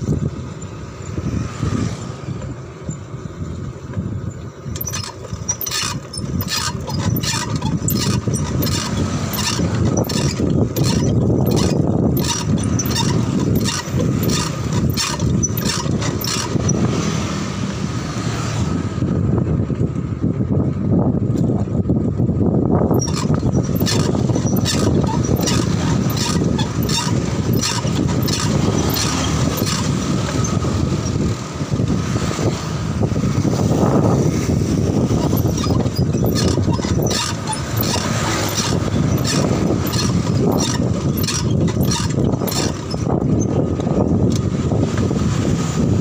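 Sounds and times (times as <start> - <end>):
street traffic: 0.0 - 46.0
wind buffeting microphone: 0.0 - 46.0
bicycle clicks and rattles: 4.7 - 16.8, 23.0 - 31.3, 34.9 - 45.1.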